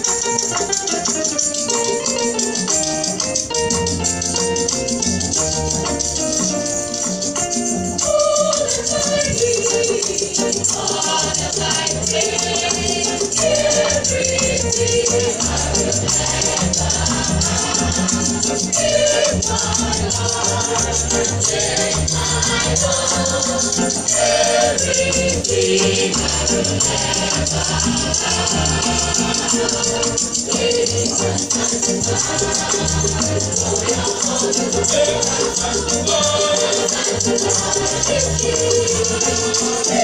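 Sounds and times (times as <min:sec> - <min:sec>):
shaker rhythm: 0:00.0 - 0:40.0
girls choir singing: 0:08.0 - 0:40.0.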